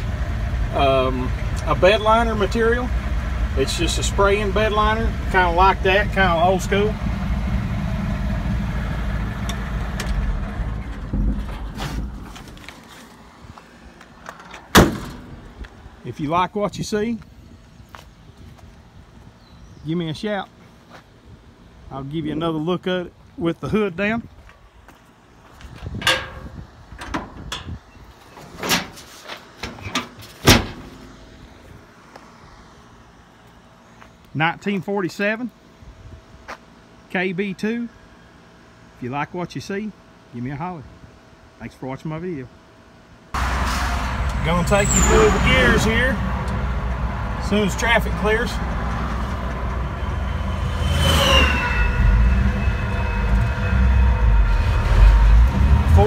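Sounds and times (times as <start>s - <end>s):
truck engine running: 0.0s - 12.9s
metal hood clunking shut: 14.2s - 15.5s, 25.9s - 31.1s
vehicle passing whoosh: 43.4s - 56.0s.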